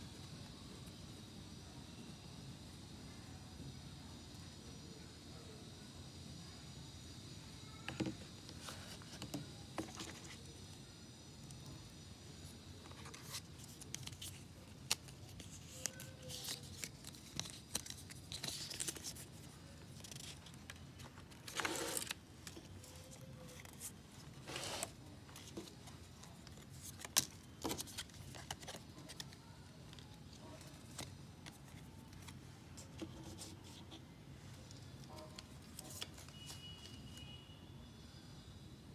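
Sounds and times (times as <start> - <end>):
paper rustling: 12.8 - 34.0.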